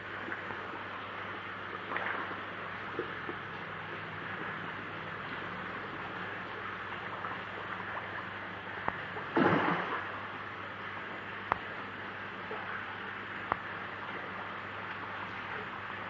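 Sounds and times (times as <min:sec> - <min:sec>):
fish splashing at water surface: 0:09.3 - 0:10.2.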